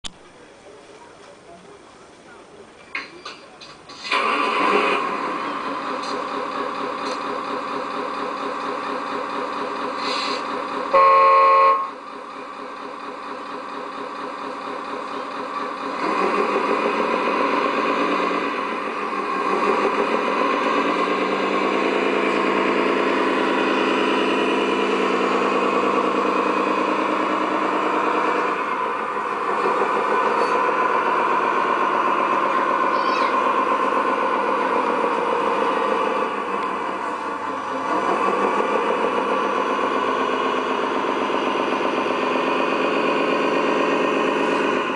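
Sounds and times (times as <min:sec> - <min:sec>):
simulated truck engine revving: 0:03.7 - 0:44.9
truck horn blast: 0:10.9 - 0:12.0.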